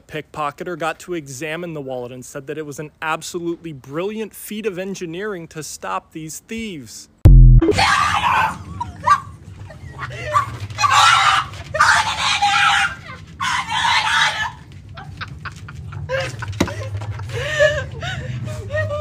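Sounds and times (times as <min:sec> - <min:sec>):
low hum: 0:07.2 - 0:07.8
dog screeching: 0:07.7 - 0:09.3, 0:10.2 - 0:14.7.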